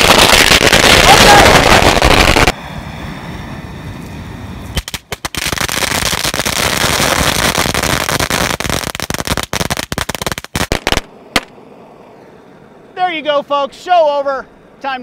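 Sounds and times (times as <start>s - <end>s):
firecrackers crackling: 0.0s - 2.6s, 4.7s - 11.6s.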